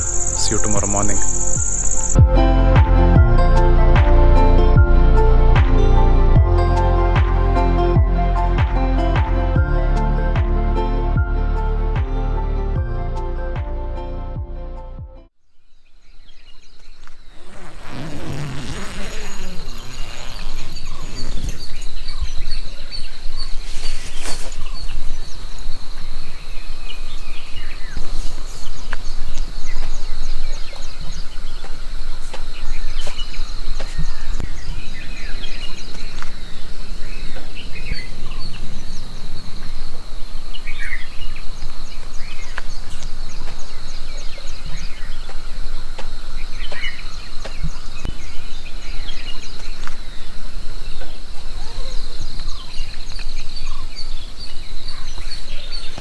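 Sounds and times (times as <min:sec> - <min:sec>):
birds chirping and calling: 0:00.0 - 0:02.2, 0:16.1 - 0:25.4
high-pitched insect drone: 0:00.0 - 0:02.2.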